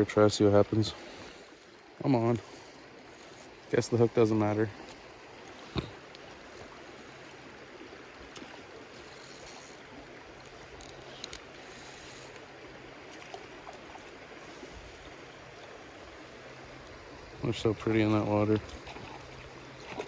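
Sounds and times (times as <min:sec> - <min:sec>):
creek running over rocks: 0:00.0 - 0:20.0.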